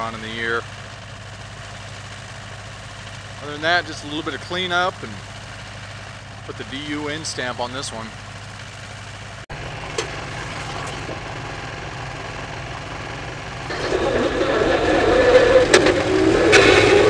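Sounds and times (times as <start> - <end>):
skid steer engine running: 0.0 - 17.0.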